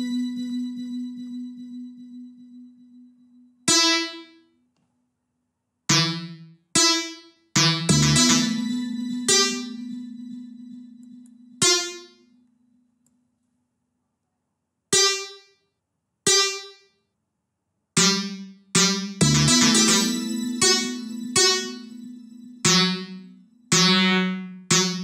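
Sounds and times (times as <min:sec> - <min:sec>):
synth bass notes: 0:07.6 - 0:12.3, 0:18.0 - 0:25.0.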